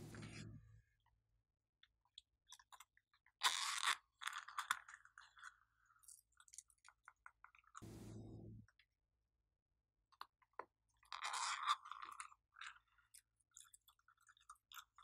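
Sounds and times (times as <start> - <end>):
short rushing noise: 7.8 - 8.6.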